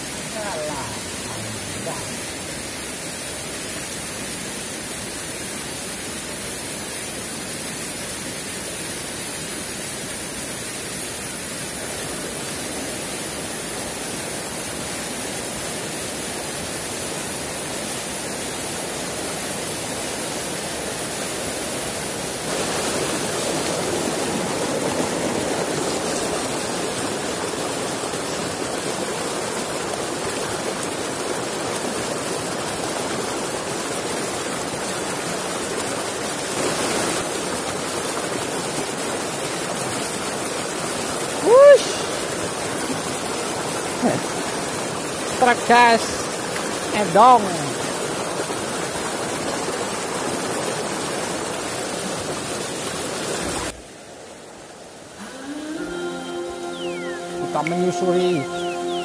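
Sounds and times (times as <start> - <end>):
river rushing over stones: 0.0 - 59.0
thin high whine: 55.2 - 59.0.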